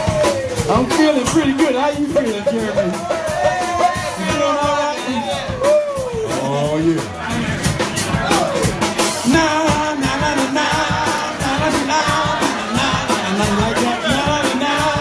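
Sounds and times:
drum beat: 0.0s - 15.0s
soul band with horns: 0.0s - 15.0s
person singing: 3.4s - 6.5s, 9.1s - 15.0s.

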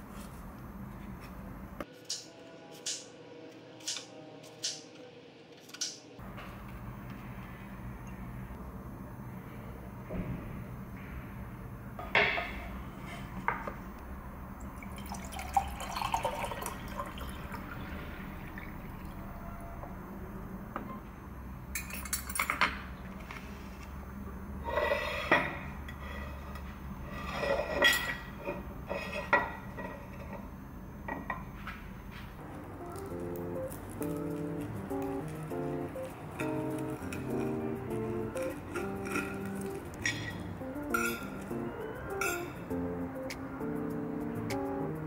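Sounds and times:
water poured into a glass: 14.8s - 19.2s
dishes clinking on wood: 38.7s - 41.4s.

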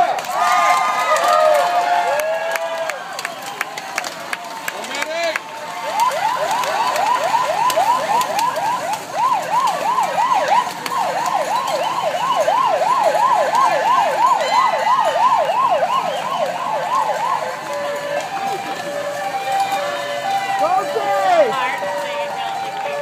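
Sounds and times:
electronic siren yelping: 5.8s - 23.0s.

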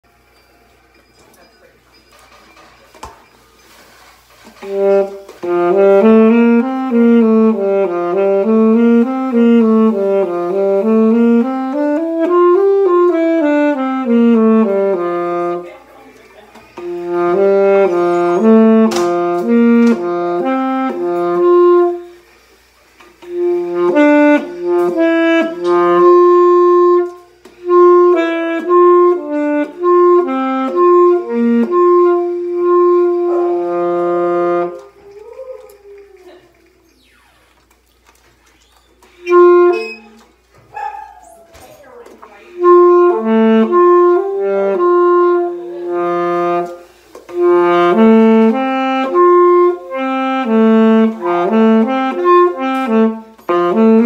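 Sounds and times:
alto saxophone playing scales: 4.4s - 15.9s, 16.6s - 35.0s, 39.0s - 40.5s, 42.3s - 54.0s.

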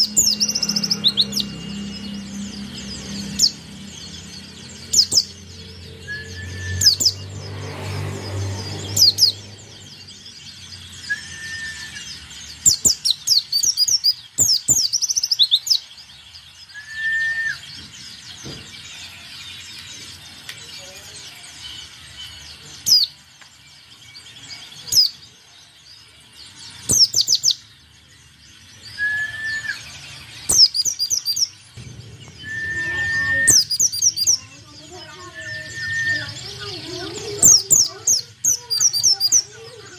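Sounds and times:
bird chirping and twittering: 0.0s - 39.9s
short whistled bird note: 32.3s - 33.7s.

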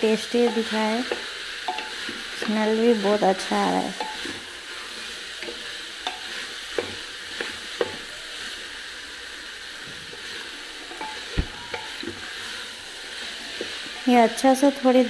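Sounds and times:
potatoes sizzling in hot oil: 0.0s - 15.0s.

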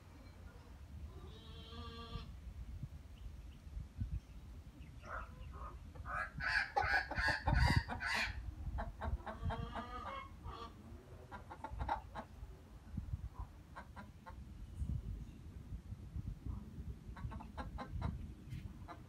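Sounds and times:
chickens clucking: 4.8s - 12.4s, 13.3s - 14.5s, 17.1s - 19.0s.

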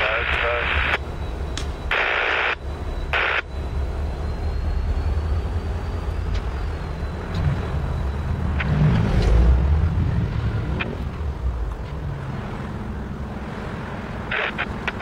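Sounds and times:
scanner radio static: 0.0s - 4.2s, 13.8s - 15.0s
diesel locomotive engine rumble: 0.0s - 15.0s.

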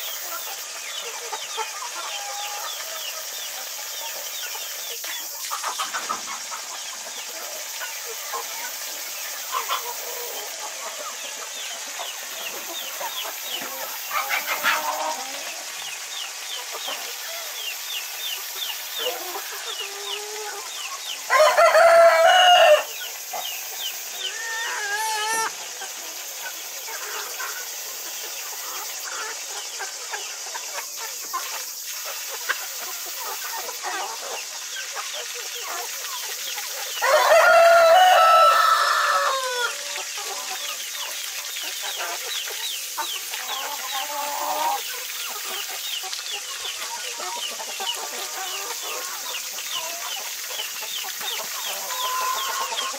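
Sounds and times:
chickens clucking: 0.0s - 52.9s
rooster crowing: 21.3s - 23.0s, 37.0s - 39.8s.

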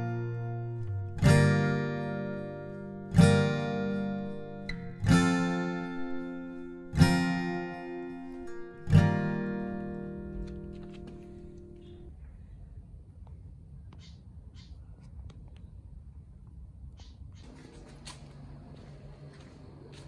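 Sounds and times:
slow strummed guitar chords: 0.0s - 12.1s.

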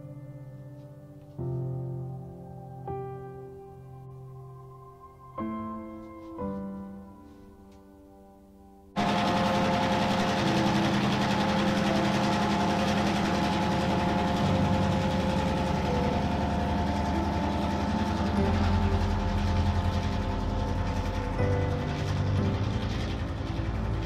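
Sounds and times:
diesel locomotive engine drone: 9.0s - 24.0s.

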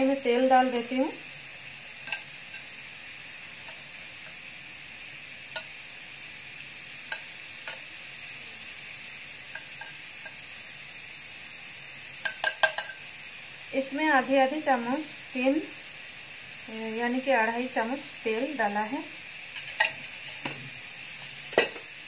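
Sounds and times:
gas stove hiss: 0.0s - 22.0s
steel spoon clicking on metal: 2.0s - 2.8s, 3.6s - 4.4s, 5.5s - 5.8s, 7.1s - 7.9s, 9.5s - 10.4s, 12.2s - 13.0s, 19.6s - 20.4s.

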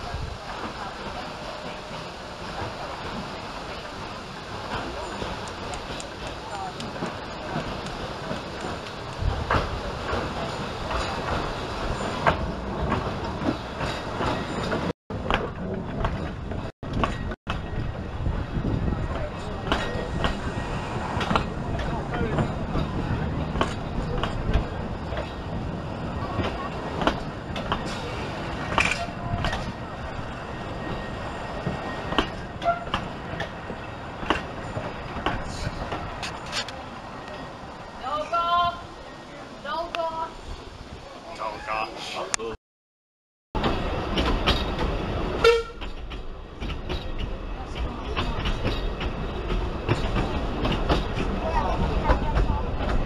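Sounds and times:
steam train rolling past: 0.0s - 42.6s, 43.6s - 53.0s
wheels clicking over rail joints: 4.6s - 37.4s, 43.6s - 53.0s.

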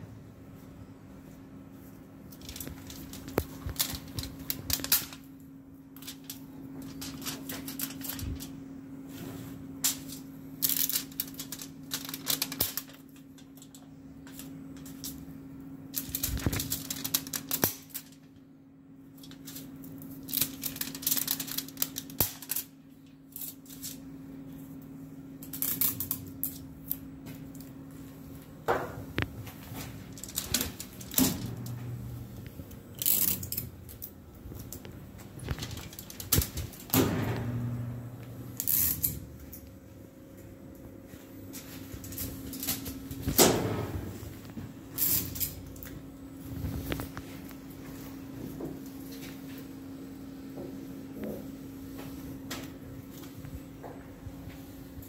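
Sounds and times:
foil crackling and rustling: 2.3s - 5.3s, 6.0s - 15.2s, 15.9s - 18.3s, 19.2s - 22.8s, 29.2s - 36.9s.

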